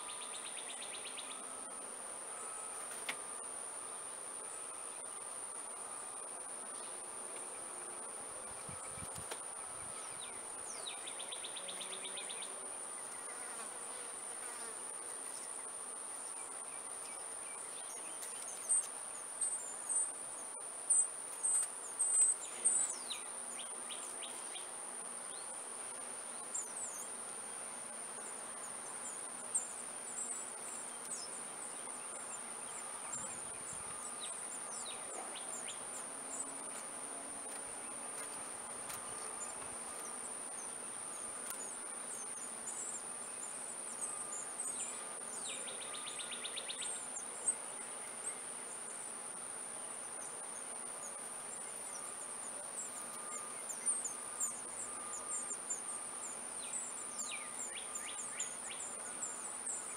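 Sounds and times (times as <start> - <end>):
high-pitched insect trill: 38.8 - 49.0, 51.0 - 59.9.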